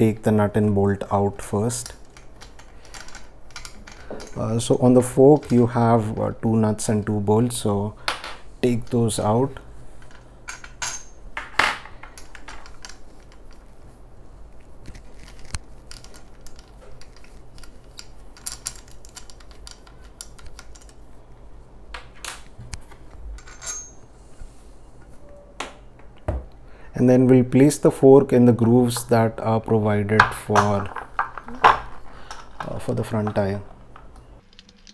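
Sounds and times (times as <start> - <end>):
small metal clinks: 23.4 - 24.1.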